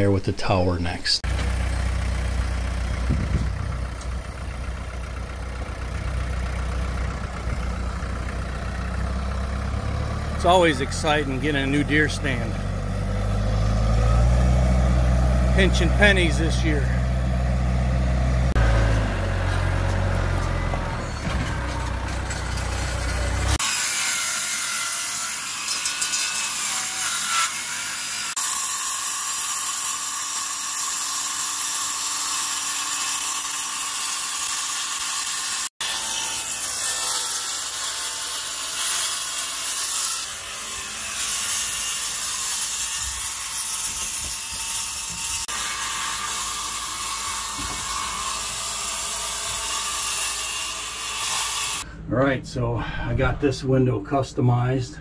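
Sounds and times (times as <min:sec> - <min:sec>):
tractor engine running: 0:01.2 - 0:23.6
circular saw cutting: 0:01.2 - 0:51.9.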